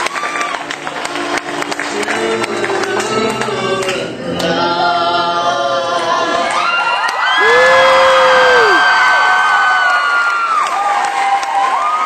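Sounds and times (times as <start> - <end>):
crowd cheering and whooping: 0.0 - 1.6, 6.3 - 12.0
audience applauding: 0.0 - 4.0, 6.5 - 12.0.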